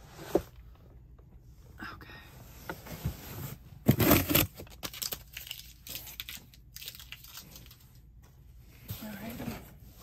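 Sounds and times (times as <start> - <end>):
cardboard rustling and knocking: 2.8 - 4.7
cardboard ripping: 3.9 - 5.5.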